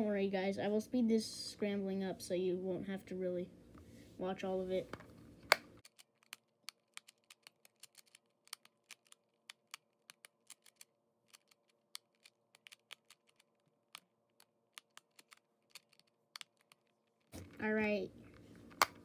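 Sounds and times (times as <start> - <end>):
sharp plastic clicks: 5.4 - 16.9, 18.6 - 19.0.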